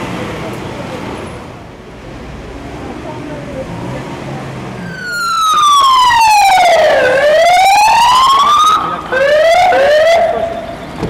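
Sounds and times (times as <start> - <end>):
emergency vehicle siren wailing: 4.8 - 11.0.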